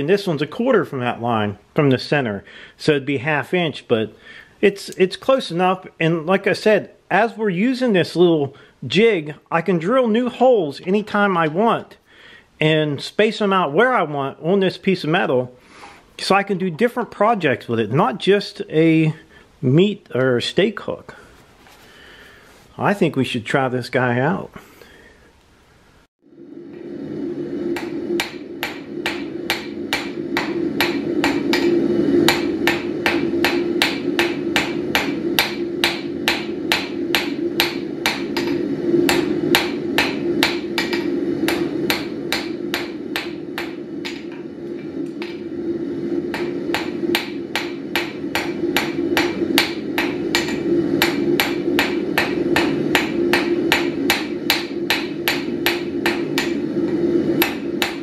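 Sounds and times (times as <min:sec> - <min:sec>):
low drone: 0:26.2 - 0:58.0
hammer ringing on anvil: 0:27.8 - 0:44.4, 0:46.3 - 0:56.6, 0:57.4 - 0:58.0.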